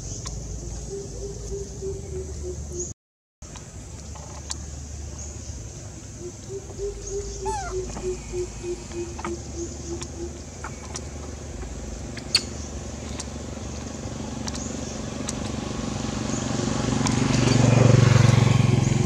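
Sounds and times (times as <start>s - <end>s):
animal low hooting notes: 0.0s - 2.9s, 5.8s - 14.7s
faint clicks: 8.9s - 15.6s.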